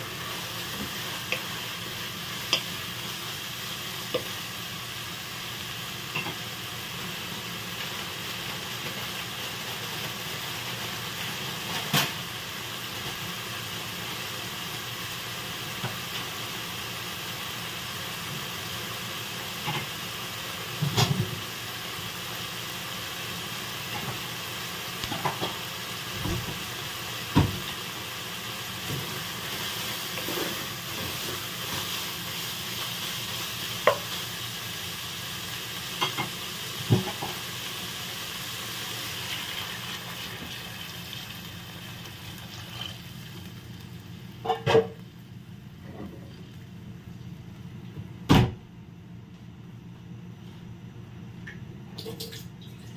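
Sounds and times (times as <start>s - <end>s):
food sizzling in oil: 0.0s - 45.7s
wooden spatula knocking pan: 33.8s - 34.0s.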